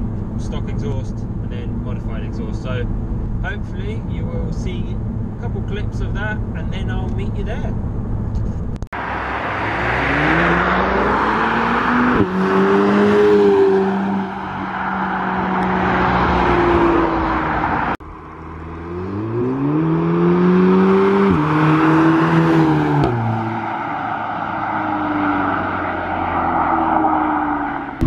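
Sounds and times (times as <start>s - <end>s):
car accelerating and shifting up: 7.7s - 28.0s
car driving past: 9.0s - 28.0s.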